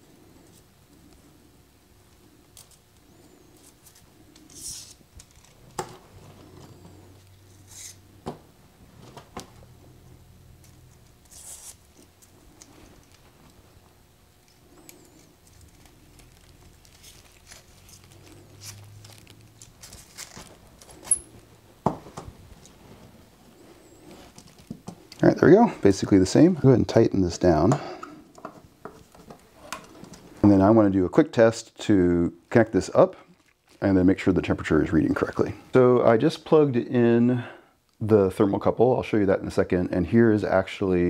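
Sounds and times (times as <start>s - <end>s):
soft rustling: 22.3s - 25.1s.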